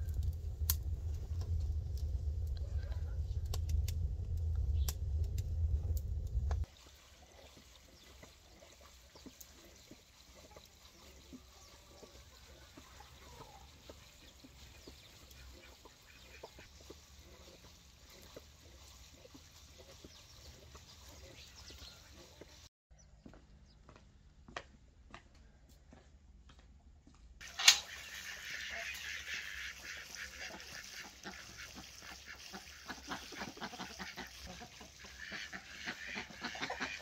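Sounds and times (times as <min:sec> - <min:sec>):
rain dripping: 0:00.0 - 0:21.1
wood fire crackling: 0:00.0 - 0:22.7.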